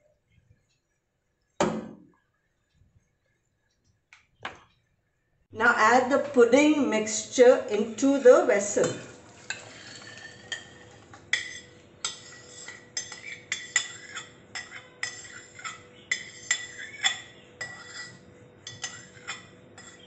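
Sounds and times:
metal spoon scraping steel bowl: 7.8 - 20.0.

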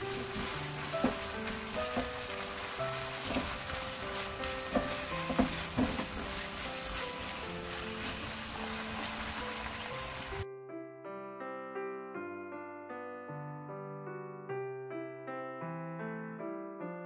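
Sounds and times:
food sizzling in frying pan: 0.0 - 10.4
background music: 0.0 - 17.0
spatula tapping and scraping pan: 0.1 - 7.0.

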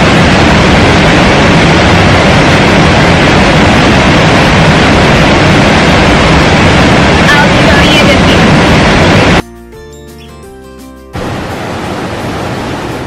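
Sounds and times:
river water rushing: 11.2 - 13.0.

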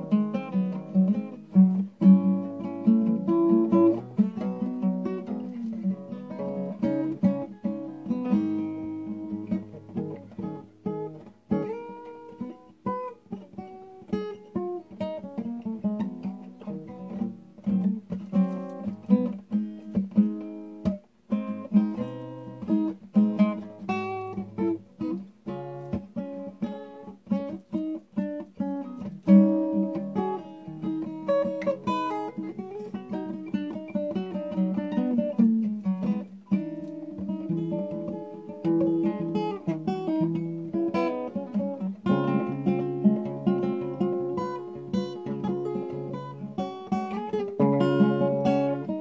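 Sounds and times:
solo acoustic jazz guitar: 0.0 - 49.0.

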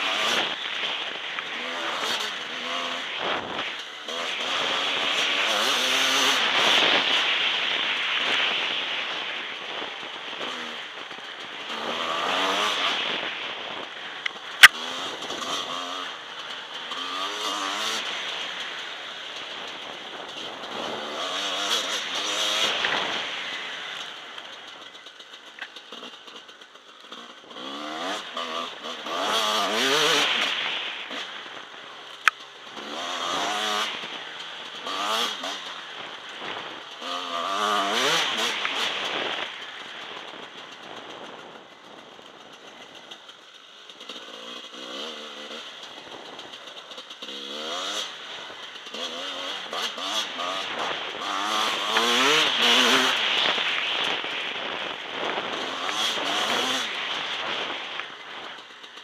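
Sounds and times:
motorcycle engine revving: 0.0 - 59.0.

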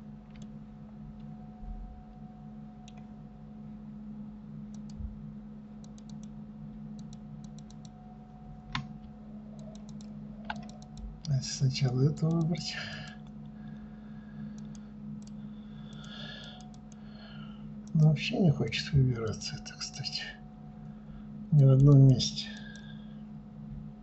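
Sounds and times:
steady low hum: 0.0 - 24.0
computer mouse clicking: 0.3 - 0.5, 2.8 - 3.1, 4.7 - 5.1, 5.8 - 6.4, 7.0 - 8.0, 9.5 - 11.3, 11.9 - 13.5, 14.5 - 17.0, 21.8 - 22.0, 22.6 - 22.9.

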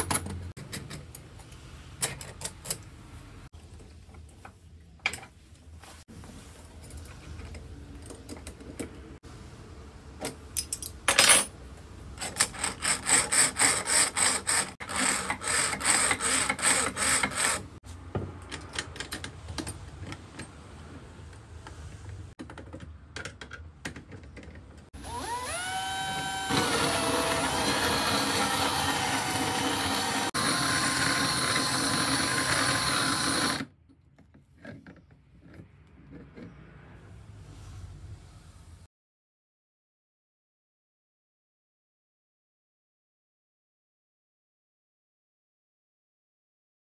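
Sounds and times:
drill motor whining: 25.0 - 33.7.

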